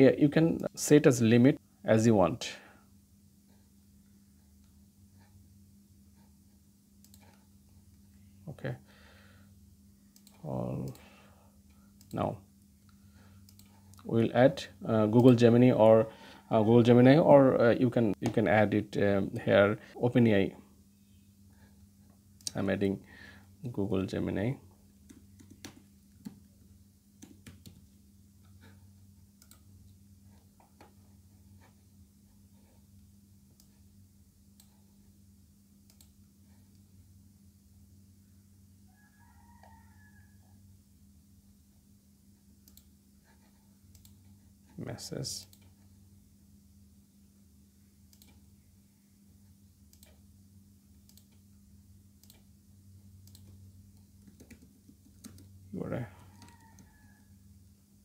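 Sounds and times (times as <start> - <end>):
faint low hum: 0.0 - 58.0
computer keys clicking: 7.0 - 7.4, 13.4 - 14.1, 25.0 - 26.4, 27.2 - 27.9, 29.4 - 30.0, 35.8 - 36.9, 42.6 - 43.0, 43.9 - 44.4, 48.1 - 48.5, 49.8 - 50.2, 50.9 - 51.4, 52.1 - 52.5, 53.2 - 55.6
computer mouse clicking: 7.0 - 7.4, 10.1 - 11.0, 13.4 - 14.1, 25.0 - 26.4, 27.2 - 28.5, 29.4 - 29.7, 33.5 - 33.8, 35.8 - 36.9, 42.6 - 44.4, 48.1 - 48.4, 49.9 - 50.2, 51.0 - 51.4, 52.2 - 52.5, 53.2 - 55.6, 56.2 - 57.1.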